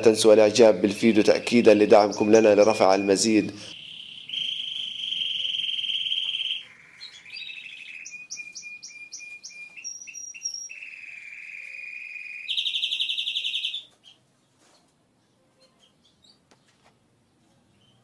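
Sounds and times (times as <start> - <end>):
canary singing trills: 0.5 - 14.2.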